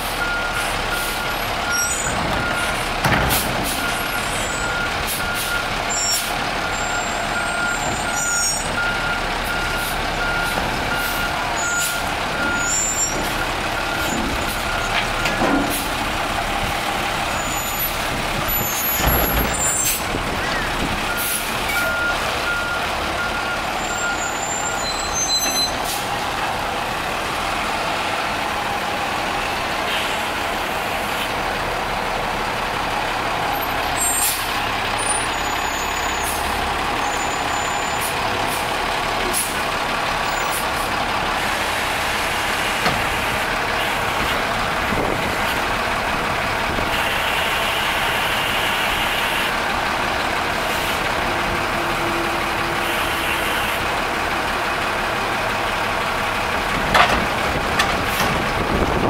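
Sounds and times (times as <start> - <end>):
diesel truck engine running: 0.0 - 59.0
reversing alarm beeping: 3.8 - 15.4, 20.6 - 25.8.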